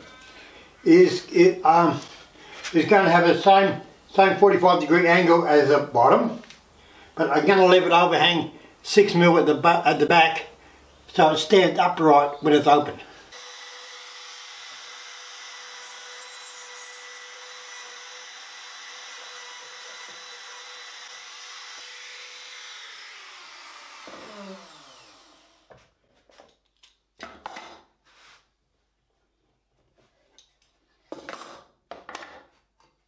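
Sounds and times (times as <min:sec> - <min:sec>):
trim router whining: 0:13.3 - 0:25.7.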